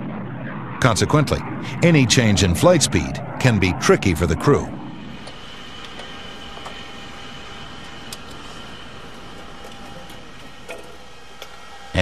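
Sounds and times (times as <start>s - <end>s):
jet engine hum and whine: 0.0s - 12.0s.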